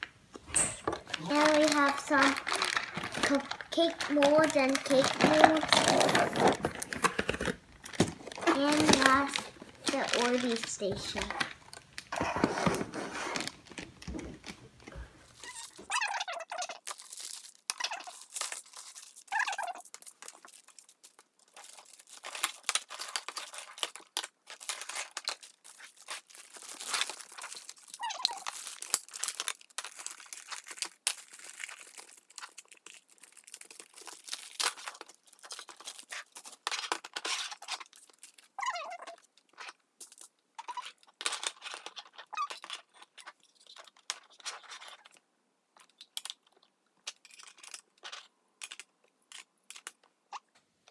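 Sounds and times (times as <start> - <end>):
plastic bags crinkling: 0.4 - 45.2
plastic toy parts clicking: 45.8 - 50.1.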